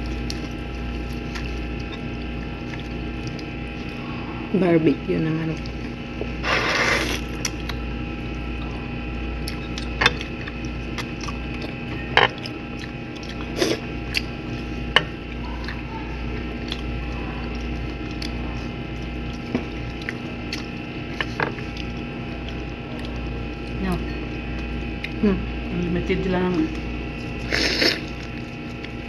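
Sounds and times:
person chewing: 0.0s - 4.1s, 5.6s - 23.8s, 27.1s - 29.0s
steady low hum: 0.0s - 29.0s.

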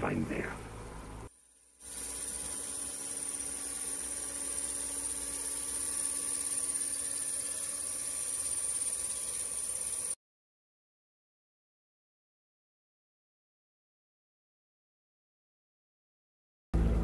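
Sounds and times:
droning hum and buzz: 0.0s - 10.2s, 16.8s - 17.0s
high whine: 1.8s - 10.2s.

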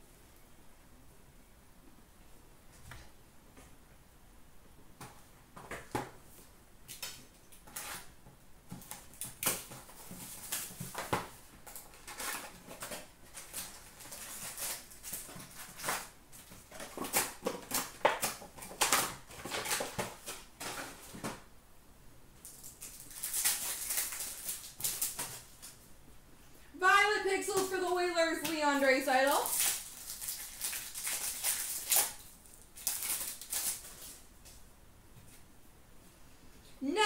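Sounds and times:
foil wrapper crinkling and tearing: 8.8s - 20.9s, 22.4s - 25.8s, 29.3s - 34.3s.

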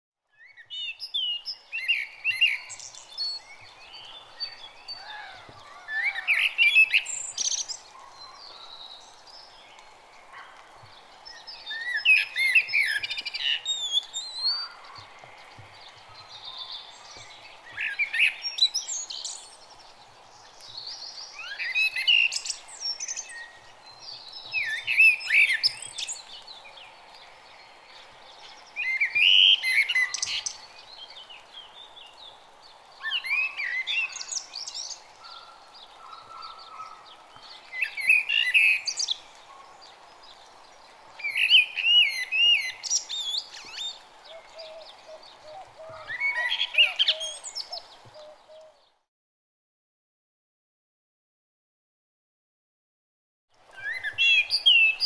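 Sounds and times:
faint steady hiss: 0.6s - 36.2s, 36.9s - 48.9s
songbird warbling: 41.2s - 48.8s.

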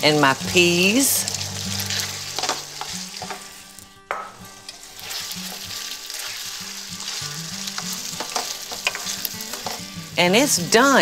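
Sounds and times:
meat sizzling in a skillet: 0.0s - 11.0s
wooden spoon scraping a pan: 4.8s - 9.8s.

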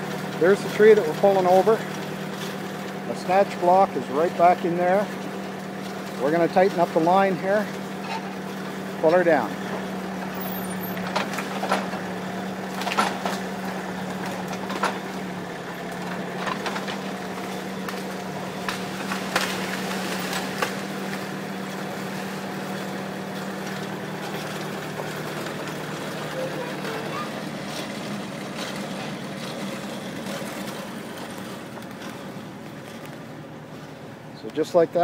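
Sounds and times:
tractor diesel engine running: 0.0s - 35.0s
wood cracking and knocking: 11.0s - 15.2s, 15.8s - 21.3s.

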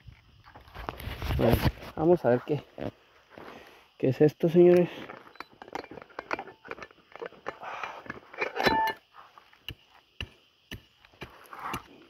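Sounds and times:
metal detector beep: 5.3s - 5.6s, 8.6s - 9.0s
digging into stony soil: 7.3s - 12.0s.

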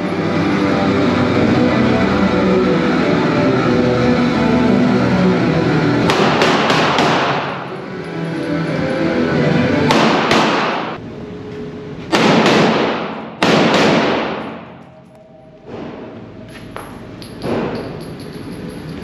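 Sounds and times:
pistol shots echoing indoors: 6.1s - 7.7s, 9.9s - 11.0s, 12.1s - 14.9s.

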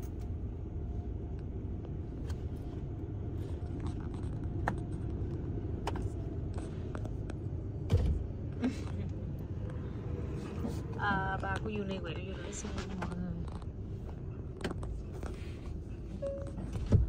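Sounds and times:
car engine low rumble: 0.0s - 17.0s.

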